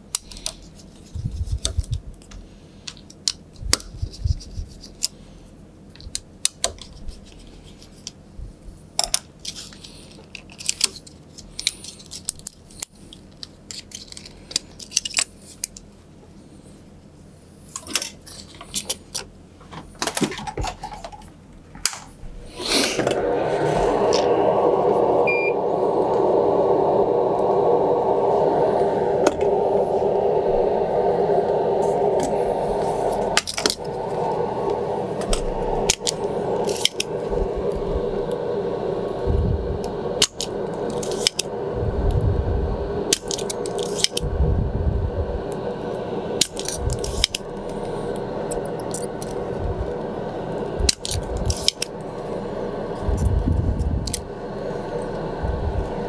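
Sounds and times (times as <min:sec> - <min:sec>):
fan hum: 0:00.0 - 0:56.0
desoldering pump clicks and snaps: 0:50.9 - 0:51.9.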